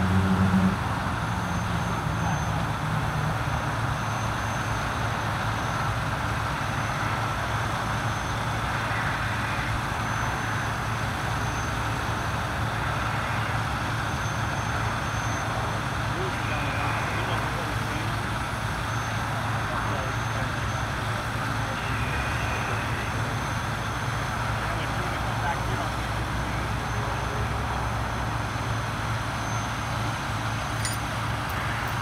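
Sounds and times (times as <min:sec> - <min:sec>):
constant wash of noise: 0:00.0 - 0:32.0
engine idling hum: 0:00.7 - 0:32.0.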